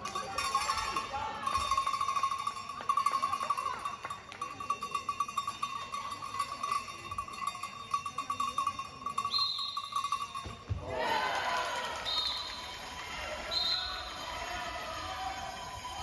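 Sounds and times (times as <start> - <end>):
bell ringing: 0.0 - 10.8
short high whistle: 9.2 - 10.0, 12.0 - 14.2.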